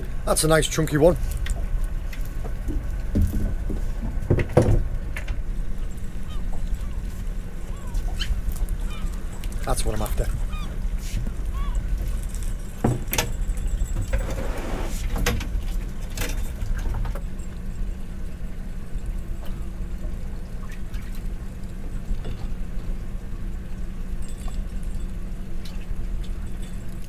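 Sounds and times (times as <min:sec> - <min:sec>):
boat engine idling: 0:00.0 - 0:27.0
clicks and rattles of fishing gear: 0:08.0 - 0:14.5, 0:15.1 - 0:17.4.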